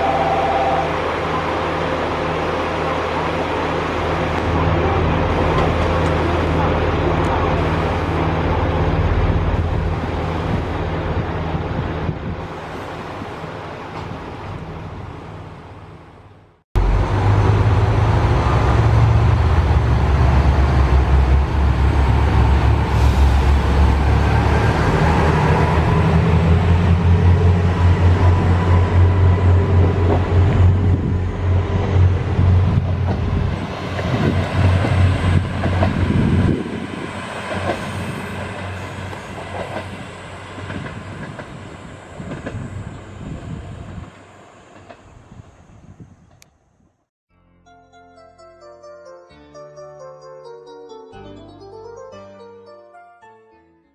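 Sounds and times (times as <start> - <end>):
train wheels clicking over rail joints: 37.3 - 43.0.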